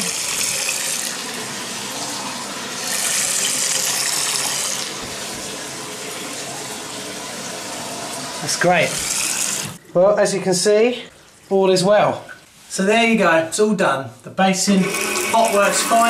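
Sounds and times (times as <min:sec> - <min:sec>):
tap running into basin: 0:00.0 - 0:10.0.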